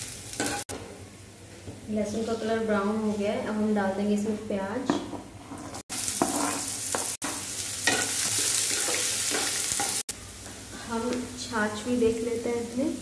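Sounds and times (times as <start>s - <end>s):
onion sizzling in hot oil: 0.0s - 0.7s, 5.7s - 13.0s
spoon scraping and stirring pan: 4.9s - 10.0s.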